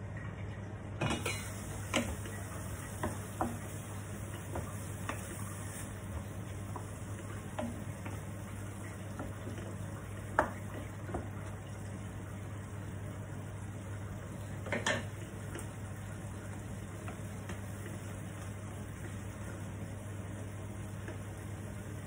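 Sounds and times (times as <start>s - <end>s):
meat and onion sizzling in a pan: 1.2s - 22.0s.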